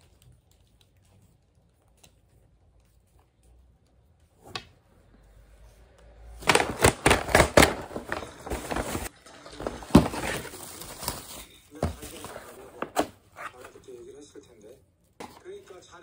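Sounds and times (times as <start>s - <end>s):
paper bag crinkling: 6.4s - 13.9s.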